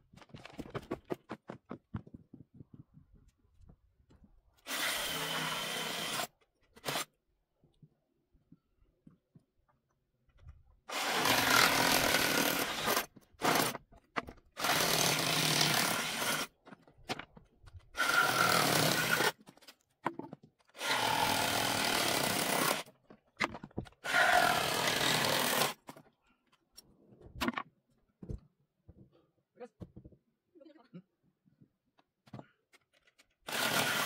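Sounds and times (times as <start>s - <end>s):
power saw cutting wood: 10.9s - 13.7s, 18.0s - 19.4s, 20.8s - 22.9s, 24.0s - 25.8s, 33.5s - 34.0s.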